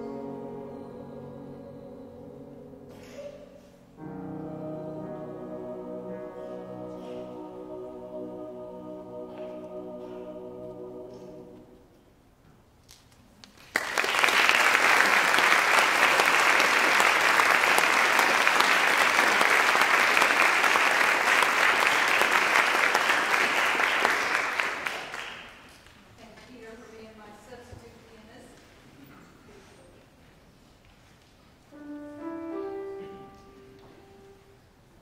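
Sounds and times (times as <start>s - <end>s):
choir holding chord: 0.0s - 12.0s
audience applause: 13.6s - 25.7s.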